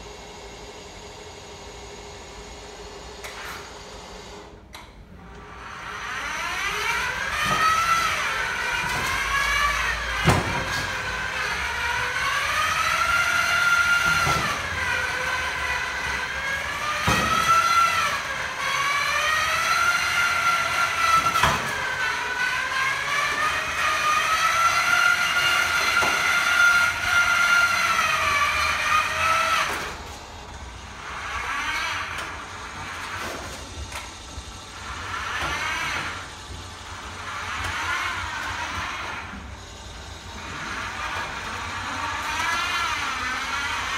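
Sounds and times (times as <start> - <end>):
electric motor whining: 5.3 - 30.1.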